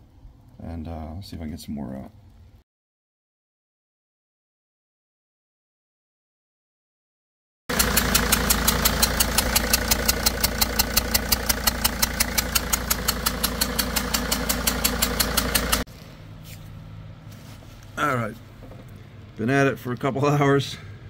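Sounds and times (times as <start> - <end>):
diesel engine idling with ticking: 7.7 - 15.9.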